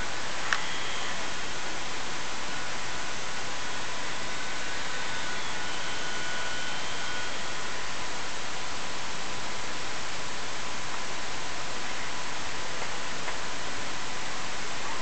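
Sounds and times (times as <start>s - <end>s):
faint thin whines: 0.0s - 8.6s.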